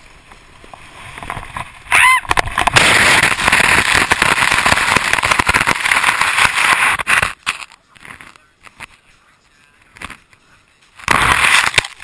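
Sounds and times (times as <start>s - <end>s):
snowboard scraping icy snow: 0.0s - 8.4s, 11.0s - 12.0s.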